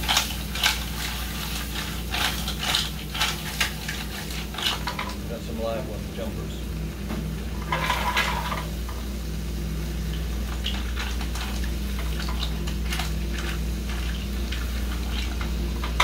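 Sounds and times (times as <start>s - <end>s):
steady low hum: 0.0s - 16.0s.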